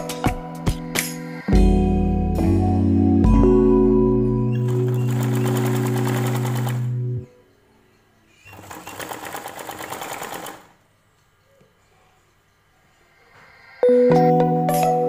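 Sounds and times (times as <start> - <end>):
keyboard background music: 0.0 - 10.9, 13.8 - 15.0
sewing machine stitching: 4.6 - 7.0, 8.4 - 10.8.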